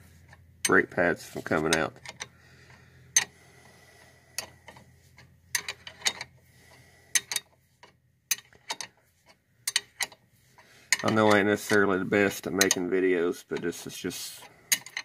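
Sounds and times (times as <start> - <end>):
wrench clicking on bolt: 7.1 - 8.9, 9.6 - 10.2, 10.9 - 11.8, 12.5 - 12.9, 14.7 - 15.0.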